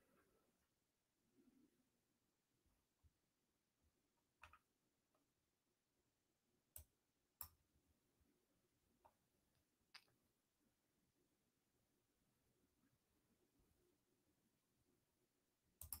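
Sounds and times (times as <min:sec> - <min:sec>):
faint scattered clicks: 0:15.8 - 0:16.0.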